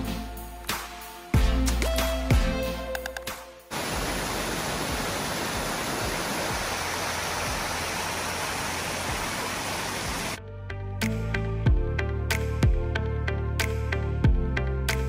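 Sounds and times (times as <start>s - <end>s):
waterfall rushing over rocks: 3.7s - 10.4s.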